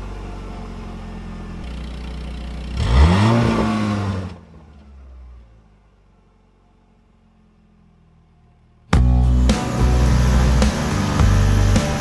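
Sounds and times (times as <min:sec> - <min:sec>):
engine revving: 0:02.6 - 0:04.6, 0:09.0 - 0:12.0.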